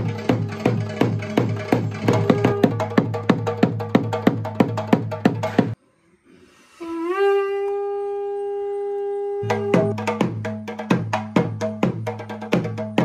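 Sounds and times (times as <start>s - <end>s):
conch shell blown: 0.0s - 3.5s, 5.9s - 10.2s
rhythmic drumming: 0.0s - 5.8s, 9.4s - 13.0s.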